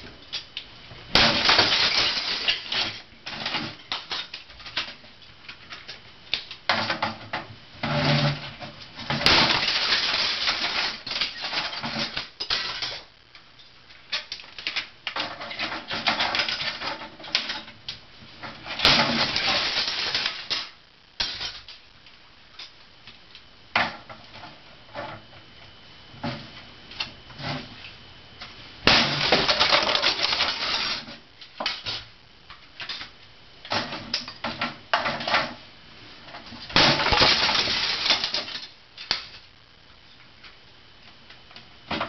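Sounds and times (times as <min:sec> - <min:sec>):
plastic pieces crunching and crackling: 0:00.3 - 0:23.4, 0:28.8 - 0:35.6, 0:36.3 - 0:39.6.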